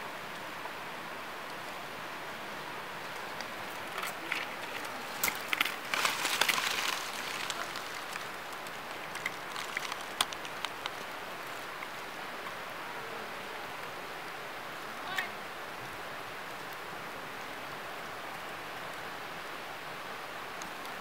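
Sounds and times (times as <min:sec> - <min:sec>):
steady hiss: 0:00.0 - 0:21.0
dry leaves crackling and rustling: 0:03.0 - 0:12.1.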